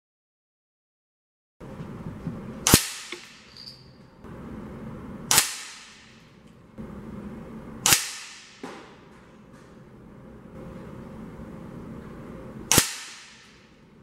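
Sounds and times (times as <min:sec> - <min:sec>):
air rifle shots: 0:02.6 - 0:03.5, 0:05.3 - 0:06.2, 0:07.8 - 0:09.0, 0:12.7 - 0:13.8.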